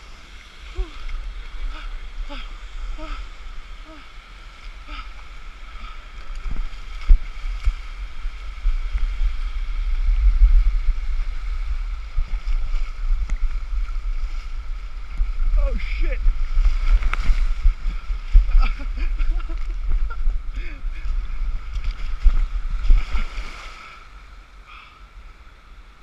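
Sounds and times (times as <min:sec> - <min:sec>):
stream water rushing over rock: 0:00.0 - 0:24.5
wind buffeting on microphone: 0:04.8 - 0:23.8.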